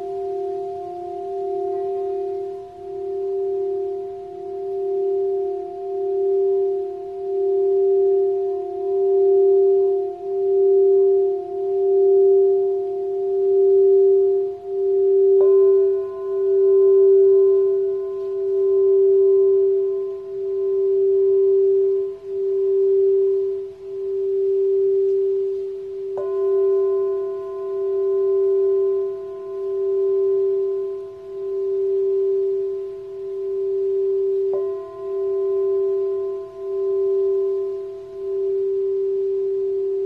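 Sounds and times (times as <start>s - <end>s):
brass singing bowl struck: 0.0s - 23.6s
crystal singing bowl tone: 0.0s - 40.0s.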